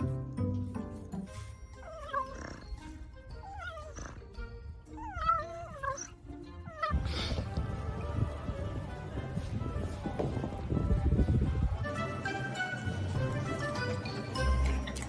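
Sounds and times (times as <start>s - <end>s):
background music: 0.0s - 15.0s
pet animal whining cries: 1.7s - 7.4s.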